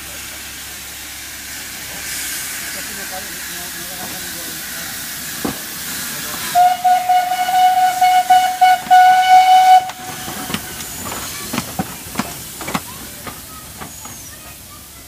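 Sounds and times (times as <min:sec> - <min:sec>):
steam hissing: 0:00.0 - 0:15.0
steam locomotive whistle: 0:06.5 - 0:10.8
sharp exhaust beats: 0:06.6 - 0:14.4.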